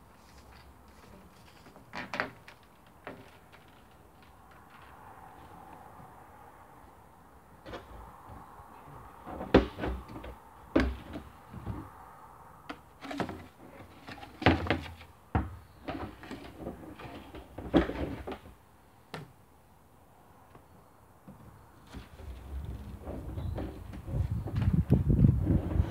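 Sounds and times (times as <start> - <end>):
plastic pipes knocking and scraping: 9.2 - 11.9, 12.7 - 18.6.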